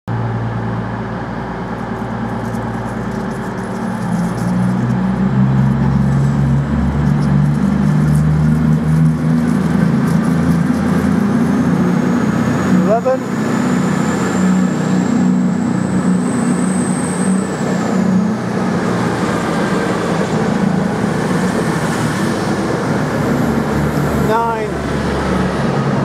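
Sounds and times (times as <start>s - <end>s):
diesel train engine drone: 0.1s - 26.0s.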